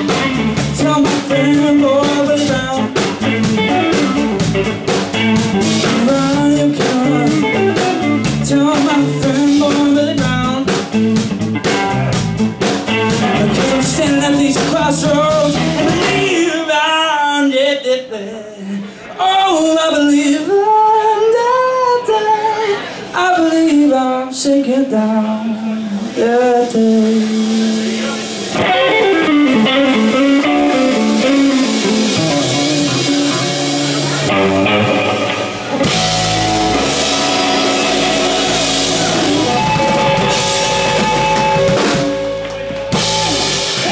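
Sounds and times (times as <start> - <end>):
person singing: 0.0 - 4.6, 5.6 - 11.0, 13.0 - 35.0
electric bass: 0.0 - 16.6, 25.1 - 43.9
drum kit: 0.0 - 16.7, 25.8 - 43.9
electric guitar: 0.0 - 17.0, 24.9 - 43.9
live band playing: 0.0 - 17.0, 25.2 - 43.9.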